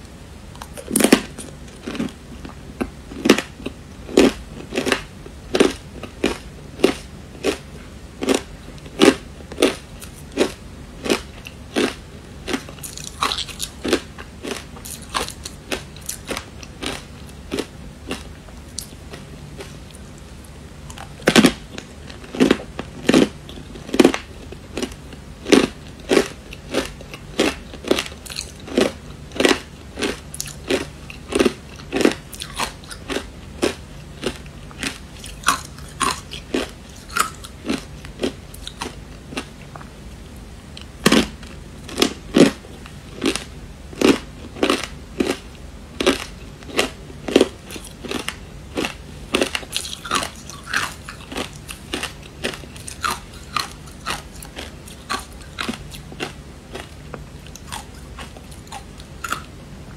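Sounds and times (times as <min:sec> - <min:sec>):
ice crunched between teeth: 0:08.2 - 0:19.0, 0:21.0 - 0:39.0, 0:46.0 - 0:59.5.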